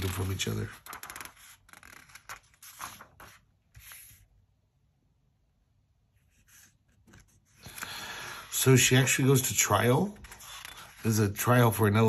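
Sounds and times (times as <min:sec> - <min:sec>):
paper page rustling: 0:00.0 - 0:04.3, 0:09.0 - 0:11.7.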